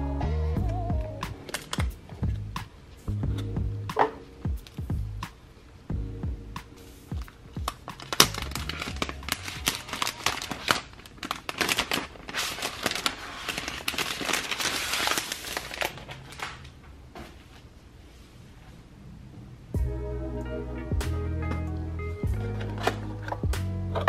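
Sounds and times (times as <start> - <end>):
quiet music: 0.0 - 16.8, 19.5 - 24.0
plastic wrap crinkling: 7.2 - 16.8.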